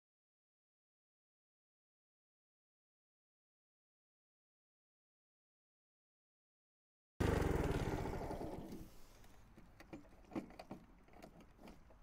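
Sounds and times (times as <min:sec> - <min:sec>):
lawn mower engine running: 0:07.2 - 0:08.9.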